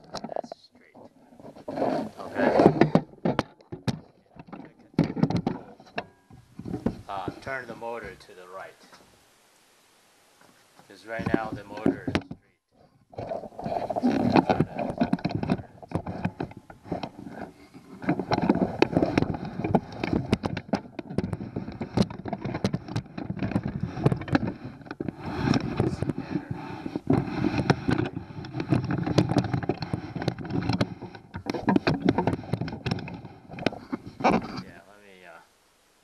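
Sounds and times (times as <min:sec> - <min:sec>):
metal parts scraping and knocking: 0:00.0 - 0:08.2, 0:13.1 - 0:34.7.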